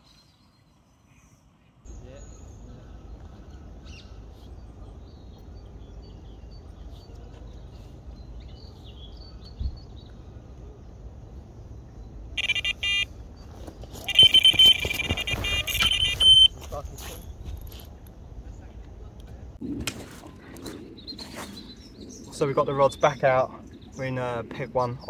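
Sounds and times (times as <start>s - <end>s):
electronic bite alarm beeping: 12.4s - 13.1s, 14.0s - 16.6s.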